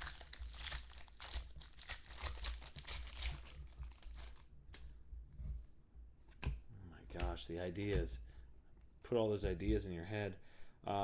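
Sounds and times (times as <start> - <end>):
foil wrapper crinkling: 0.0 - 4.5.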